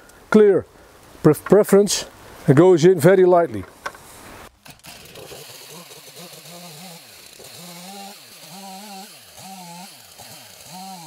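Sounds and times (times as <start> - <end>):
chainsaw cutting through log: 4.6 - 11.0.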